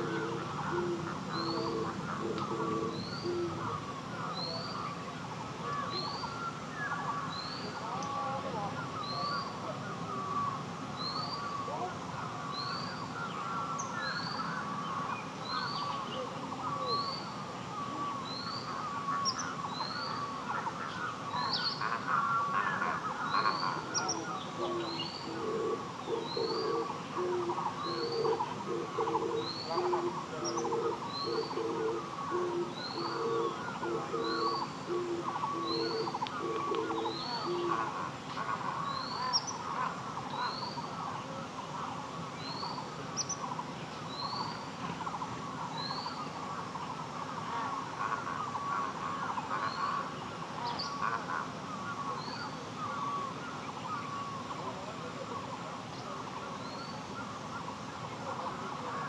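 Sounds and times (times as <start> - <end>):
birds chattering: 0.0 - 59.0.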